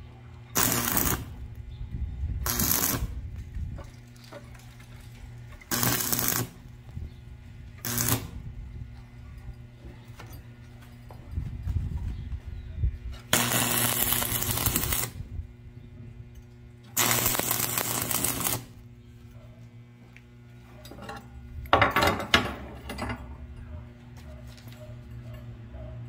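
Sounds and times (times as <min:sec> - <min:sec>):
steady low hum: 0:00.0 - 0:26.0
welder arc crackling and hissing: 0:00.6 - 0:01.6, 0:02.4 - 0:03.4, 0:05.6 - 0:07.0, 0:07.6 - 0:08.5, 0:13.3 - 0:15.3, 0:16.9 - 0:18.9.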